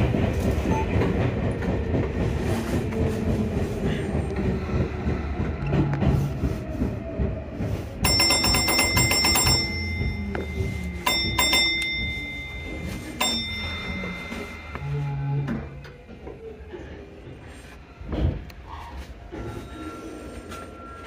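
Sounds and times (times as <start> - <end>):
train running rumble: 0.0 - 21.0
level-crossing warning bells: 7.2 - 16.5, 19.3 - 21.0.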